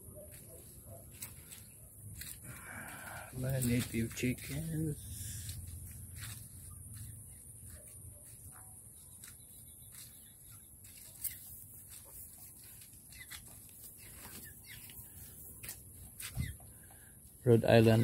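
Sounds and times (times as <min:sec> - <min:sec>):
chickens clucking: 0:09.9 - 0:15.5.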